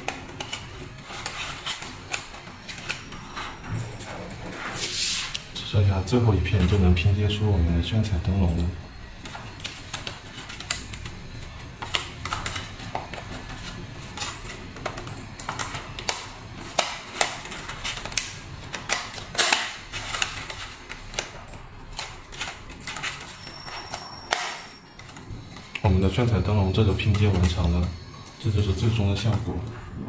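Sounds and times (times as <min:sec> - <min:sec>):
plastic film crackling and clicking: 0:08.5 - 0:29.6.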